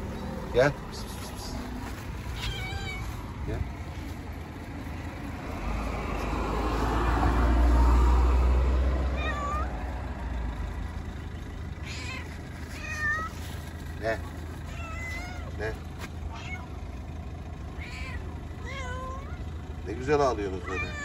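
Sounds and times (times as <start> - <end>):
passing vehicle rumble: 0.0 - 21.0
cat meowing: 2.2 - 3.4, 9.2 - 9.9, 11.8 - 13.5, 14.6 - 15.6, 16.3 - 16.8, 17.7 - 19.5, 20.6 - 21.0.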